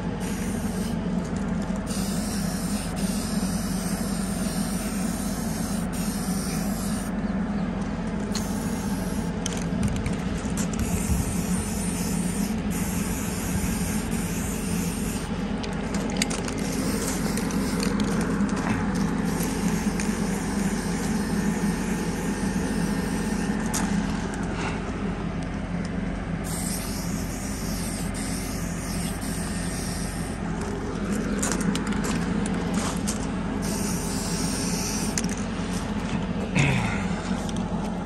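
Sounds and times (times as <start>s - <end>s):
engine drone: 0.0s - 38.0s
spray paint can hissing: 0.2s - 1.0s, 1.8s - 7.1s, 8.3s - 9.4s, 10.6s - 15.3s, 16.2s - 23.9s, 26.4s - 30.4s, 33.6s - 35.3s.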